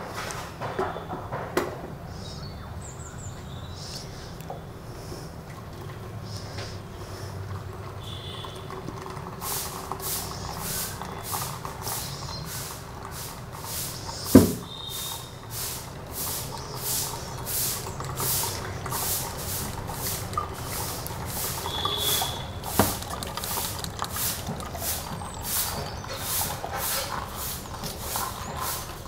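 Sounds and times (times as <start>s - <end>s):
spoon stirring pulp in strainer: 6.3s - 29.0s.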